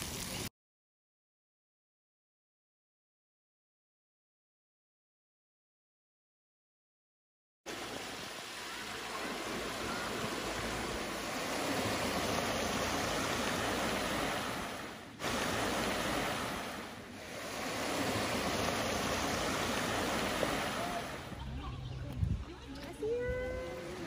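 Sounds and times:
creek water rushing over rocks: 7.7s - 21.6s.

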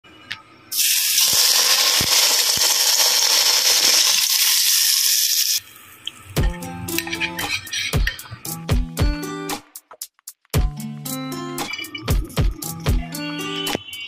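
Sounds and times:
hot oil sizzling: 0.7s - 5.9s.

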